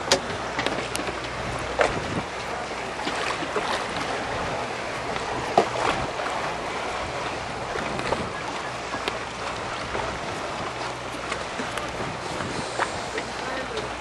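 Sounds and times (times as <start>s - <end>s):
wind blowing across microphone: 1.4s - 2.4s, 11.8s - 13.2s.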